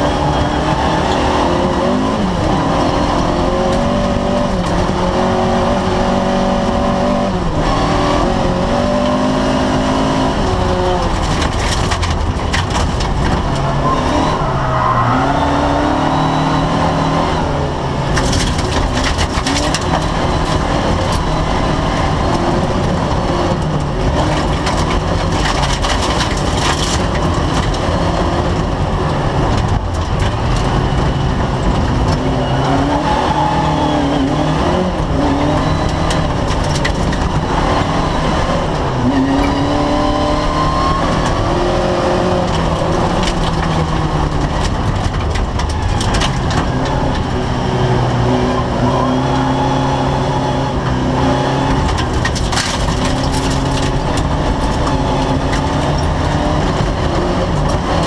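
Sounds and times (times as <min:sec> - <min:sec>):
car engine revving: 0:00.0 - 0:58.0
gravel striking car underside: 0:10.7 - 0:14.6, 0:18.0 - 0:21.4, 0:23.6 - 0:28.8, 0:35.7 - 0:37.5, 0:41.1 - 0:47.4, 0:51.6 - 0:58.0.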